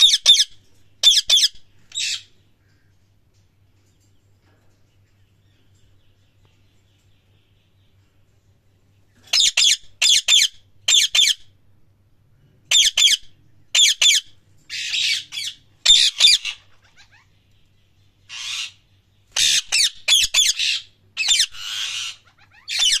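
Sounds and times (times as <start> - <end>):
parakeet squawking: 0.0 - 2.3, 9.3 - 11.4, 12.7 - 17.4, 18.3 - 23.0.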